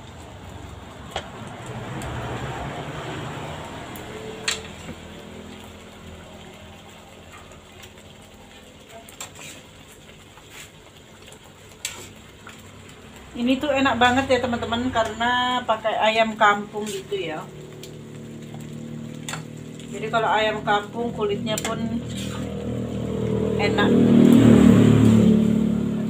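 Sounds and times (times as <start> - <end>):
soft sizzle: 0.0 - 26.0
metal spoon clinking on pans: 4.4 - 4.9, 19.2 - 19.6.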